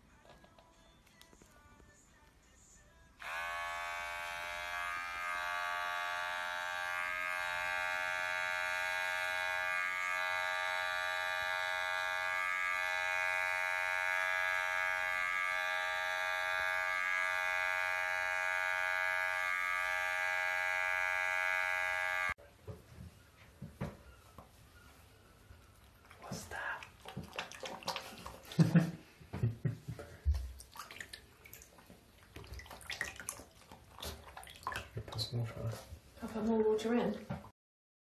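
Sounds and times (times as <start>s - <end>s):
electric hair clippers buzzing: 3.2s - 22.4s.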